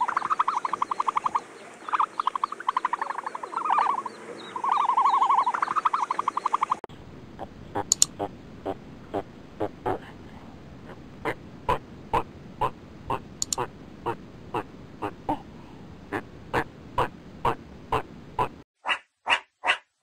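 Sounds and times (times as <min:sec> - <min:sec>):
animal pulsed trilling calls: 0:00.0 - 0:10.0.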